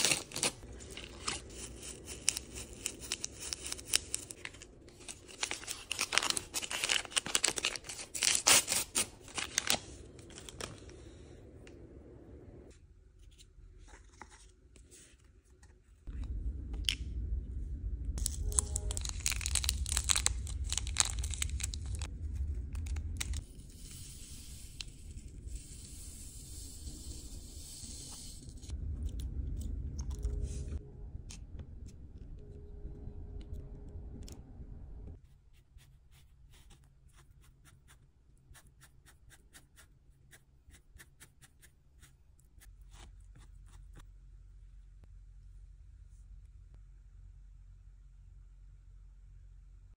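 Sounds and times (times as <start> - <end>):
plastic packet crinkling: 0.0 - 10.8, 18.2 - 22.1.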